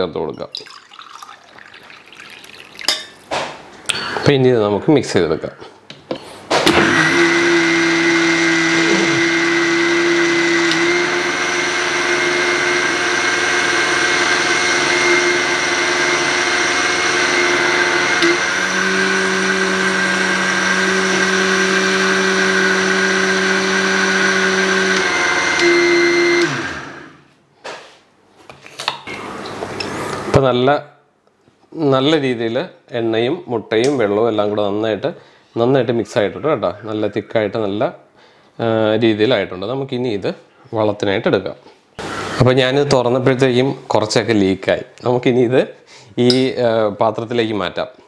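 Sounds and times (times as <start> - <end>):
mixer grinder running: 6.7 - 27.2, 42.0 - 42.6.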